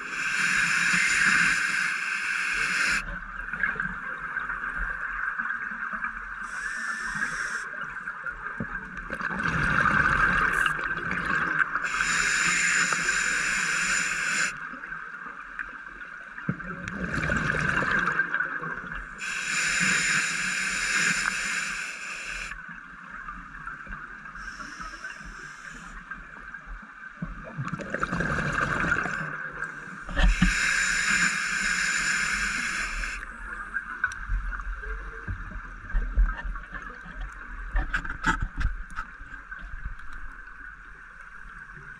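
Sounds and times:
regulator hissing: 0:00.0 - 0:03.0, 0:06.4 - 0:07.6, 0:11.8 - 0:14.6, 0:19.2 - 0:22.6, 0:24.4 - 0:25.9, 0:30.2 - 0:33.2
exhaled bubbles rushing: 0:09.1 - 0:11.8, 0:16.9 - 0:18.4, 0:27.5 - 0:29.4.

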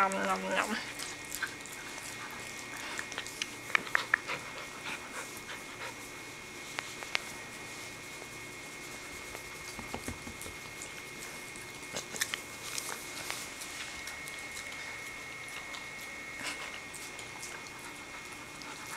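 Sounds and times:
puppy chewing: 0:00.0 - 0:18.9
teeth clicks: 0:02.9 - 0:04.3, 0:12.0 - 0:12.5.

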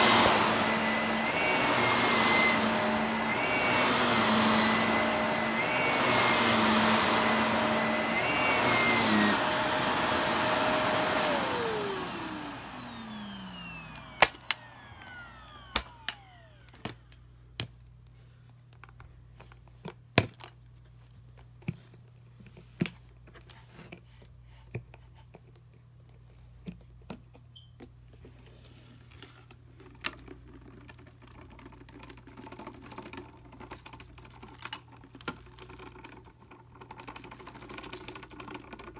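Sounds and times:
vacuum cleaner motor: 0:00.0 - 0:17.2, 0:30.9 - 0:38.9.

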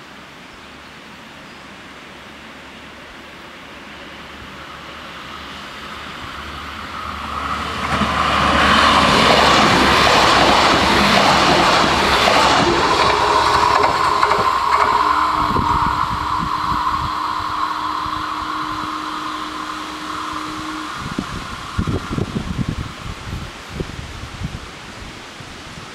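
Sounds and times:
train passing: 0:01.2 - 0:25.7
barrier motor hum: 0:04.8 - 0:23.7.

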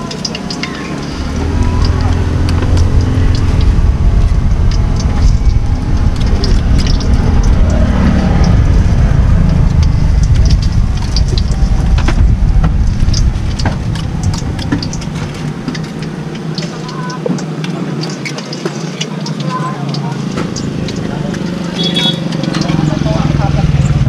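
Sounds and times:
balls deep-frying in hot oil: 0:00.0 - 0:24.0
oil crackling: 0:00.0 - 0:24.0
loud low rumble: 0:01.0 - 0:16.4.

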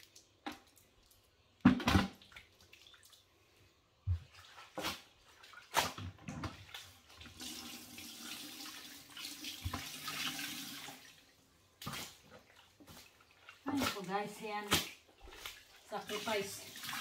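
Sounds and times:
water splashing into bucket: 0:00.0 - 0:03.3, 0:04.1 - 0:17.0.

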